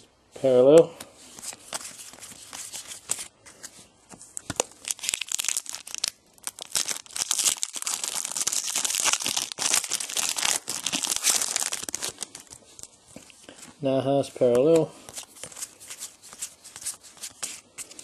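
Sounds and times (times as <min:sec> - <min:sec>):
plastic wrapper tearing and crinkling: 0:04.4 - 0:13.0.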